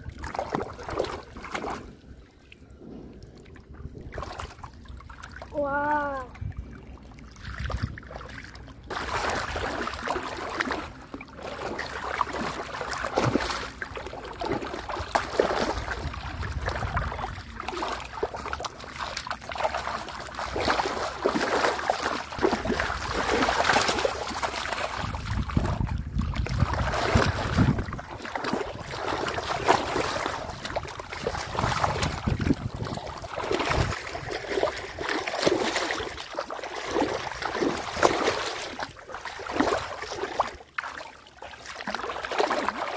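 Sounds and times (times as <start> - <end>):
muddy water splashing: 0.0 - 42.9.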